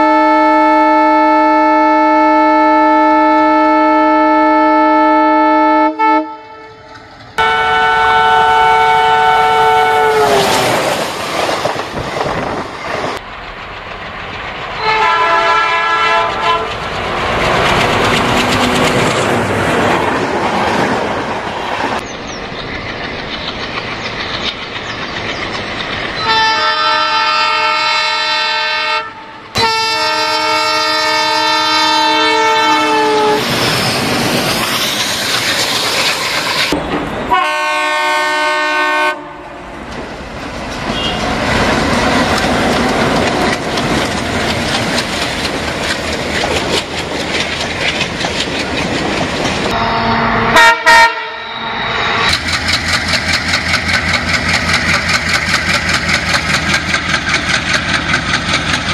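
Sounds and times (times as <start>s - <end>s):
locomotive horn blasts: 0.0s - 10.5s, 14.8s - 16.8s, 26.2s - 33.4s, 37.3s - 39.7s, 40.9s - 41.4s, 49.7s - 52.3s
passing train rumble: 0.0s - 58.9s.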